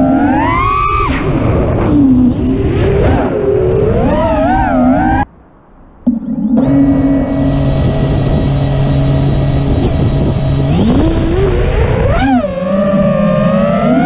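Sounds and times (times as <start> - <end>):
drone motors whining: 6.1 - 14.0.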